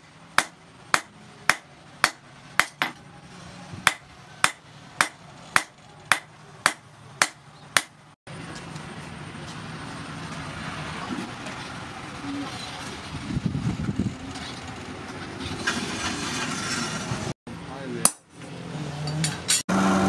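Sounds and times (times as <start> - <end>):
hammer striking steel on anvil: 0.0 - 3.0, 3.8 - 8.0.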